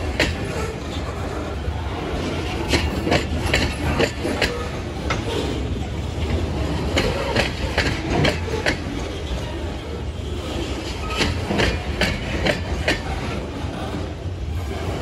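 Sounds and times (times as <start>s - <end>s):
wheels clicking over rail joints: 0.0s - 1.6s, 2.2s - 9.4s, 10.7s - 13.4s
freight train rumbling: 0.0s - 15.0s.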